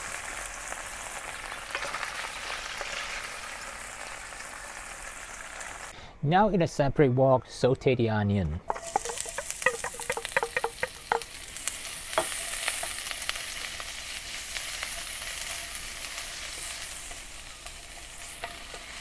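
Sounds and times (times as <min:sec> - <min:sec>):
onion sizzling in oil: 0:00.0 - 0:05.9, 0:08.7 - 0:19.0
metallic clinks of steel bowl: 0:08.7 - 0:11.4
wooden spatula scraping wok: 0:08.7 - 0:19.0.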